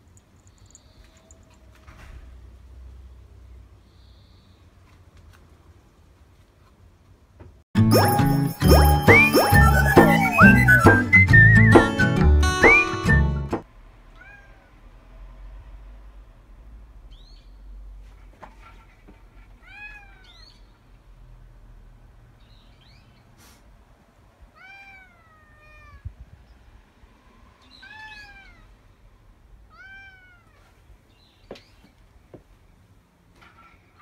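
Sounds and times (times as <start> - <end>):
cat meowing: 14.1 - 14.8, 19.6 - 20.6, 24.5 - 26.1, 27.6 - 28.8, 29.7 - 30.8.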